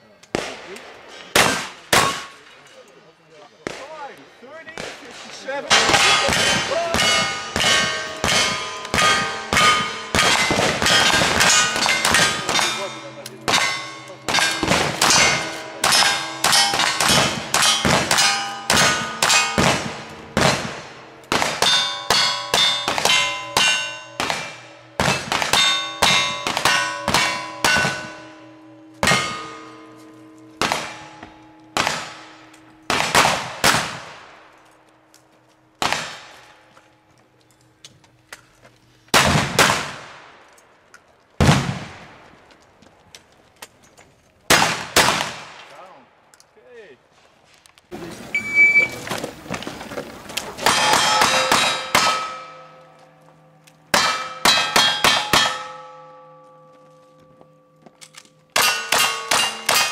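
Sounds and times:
gunshots: 0.3 - 2.4, 4.7 - 28.3, 30.6 - 31.2, 31.8 - 34.4, 35.8 - 36.4, 39.1 - 40.4, 41.4 - 42.1, 44.5 - 45.7, 50.6 - 52.6
deep blasts: 4.8 - 34.5
steel target clanging: 5.6 - 34.9, 50.5 - 57.3, 58.0 - 59.9.

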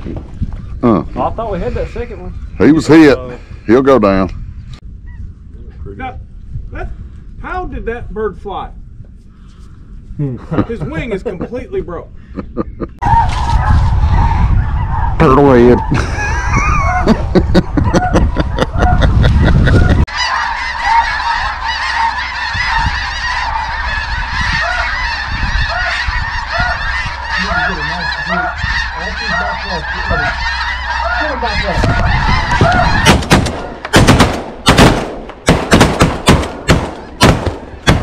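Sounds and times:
geese honking: 13.0 - 16.0, 17.8 - 38.0
shotgun blasts: 33.0 - 38.0.

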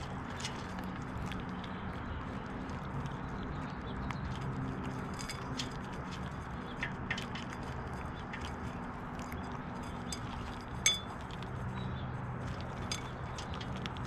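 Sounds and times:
seeds cracked and chewed: 0.0 - 14.0
sharp clink: 10.1 - 11.1.

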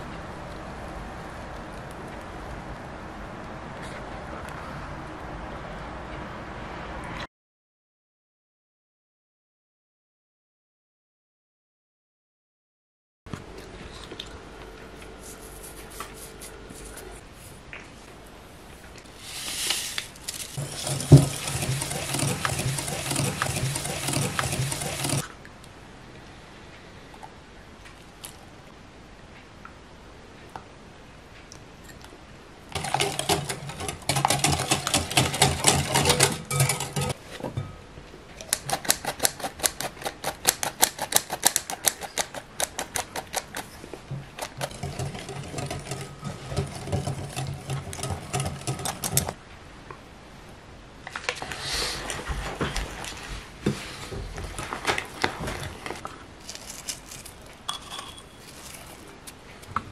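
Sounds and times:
sieve tapped and shaken: 19.7 - 25.2, 32.8 - 37.7
spoon stirring thick dough: 20.3 - 25.2, 32.8 - 37.2, 42.0 - 49.4
wire whisk beating against glass: 32.8 - 37.2.

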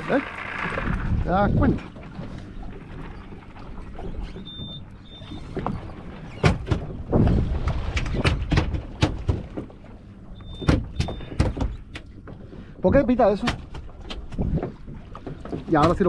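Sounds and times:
loud knocks and thumps: 6.4 - 9.8, 10.6 - 11.9.

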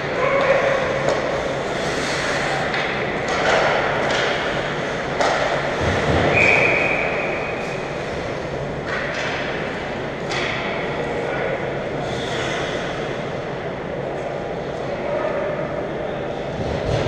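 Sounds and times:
skating and rink noise: 0.0 - 17.0
sticks and puck knocks: 2.7 - 6.3.

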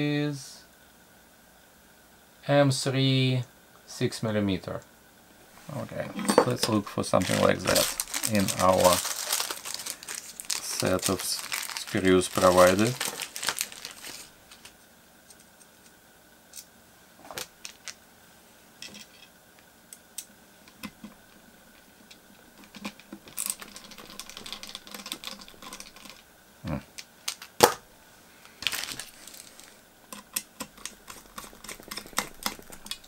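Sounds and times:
rustling: 7.1 - 14.8, 28.2 - 29.8.

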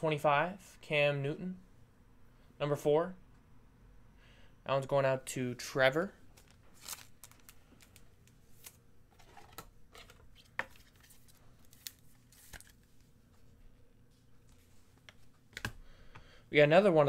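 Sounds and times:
trading cards rustling: 6.3 - 13.1.

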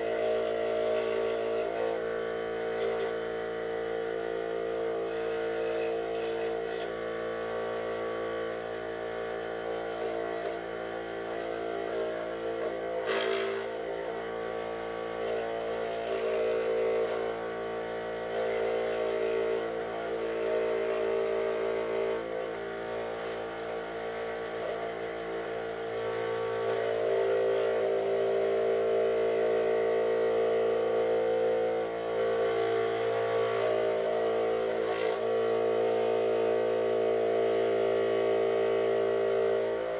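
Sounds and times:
power saw cutting plywood: 9.6 - 28.4, 30.8 - 39.9.

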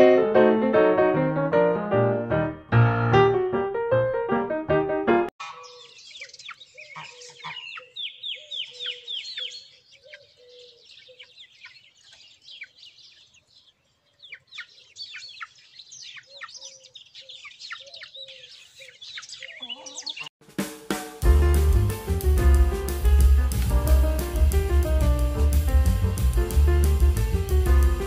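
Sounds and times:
young hens peeping: 5.4 - 20.4
hens clucking softly: 18.8 - 20.3.

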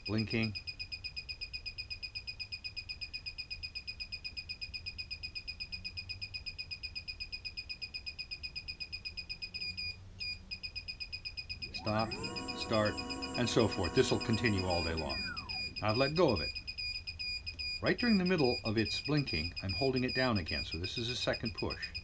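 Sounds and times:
rapid high-pitched beeps: 11.3 - 22.0.

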